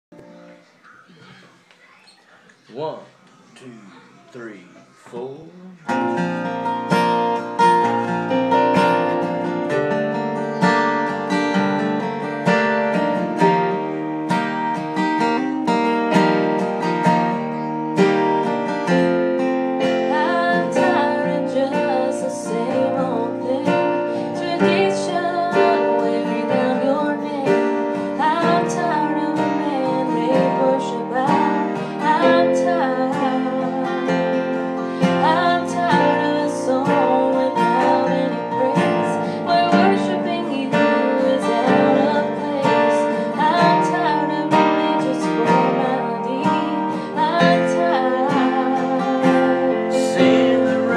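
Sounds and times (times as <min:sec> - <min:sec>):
strummed acoustic guitar: 0:04.2 - 0:50.9
person singing: 0:19.8 - 0:50.9.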